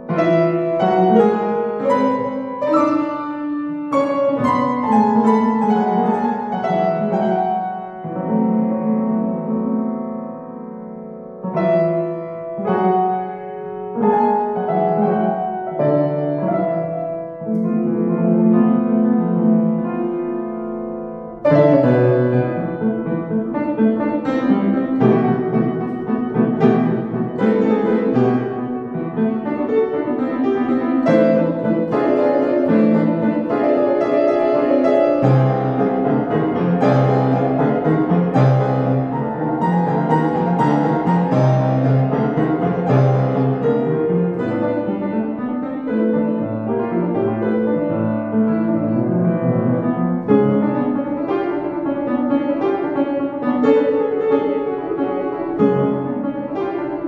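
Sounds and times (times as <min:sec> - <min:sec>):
solo piano piece: 0:00.0 - 0:57.0.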